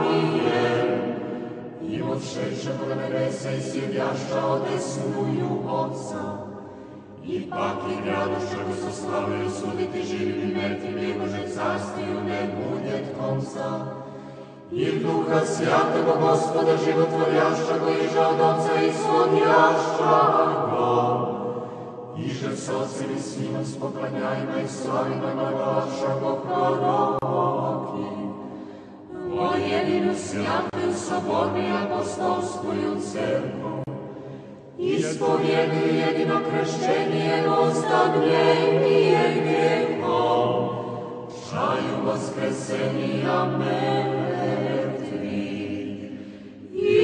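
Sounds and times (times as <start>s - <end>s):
choir singing liturgical chant: 0.0s - 47.0s.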